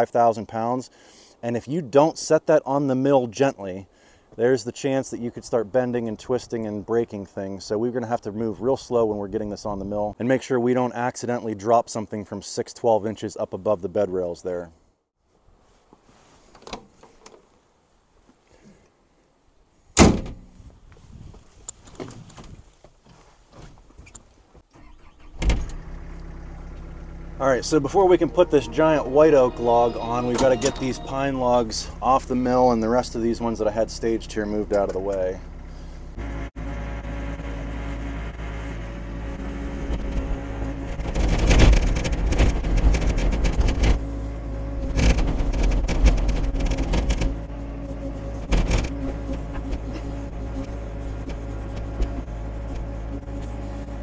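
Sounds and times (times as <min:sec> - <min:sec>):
cab door slamming: 0:20.0 - 0:20.5, 0:48.4 - 0:50.3
knocks and clunks: 0:20.0 - 0:20.6, 0:39.8 - 0:44.0, 0:44.8 - 0:53.6
excavator diesel engine running: 0:25.8 - 0:34.3, 0:34.9 - 0:54.0.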